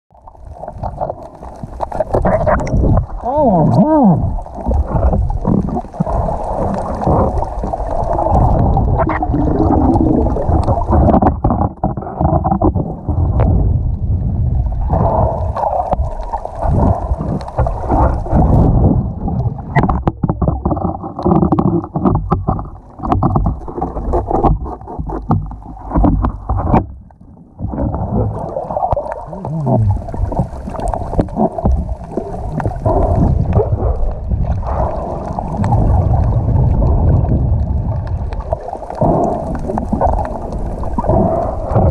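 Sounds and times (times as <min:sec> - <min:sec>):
underwater rushing and gurgling: 0:00.1 - 0:41.9
sharp clicks and knocks: 0:19.8 - 0:27.0.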